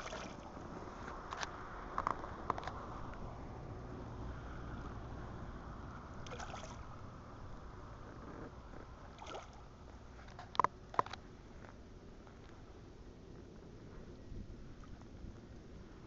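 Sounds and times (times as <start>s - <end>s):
fish splashing at water surface: 0.0s - 0.6s, 6.2s - 6.8s, 9.2s - 9.6s
low rumble of water and wind: 0.0s - 16.0s.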